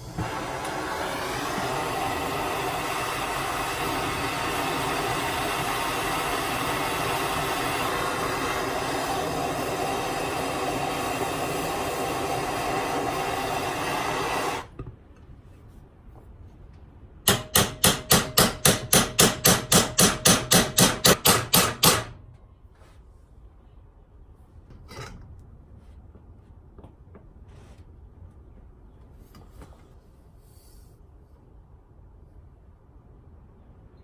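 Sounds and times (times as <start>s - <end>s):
gas torch hissing: 0.0s - 14.8s.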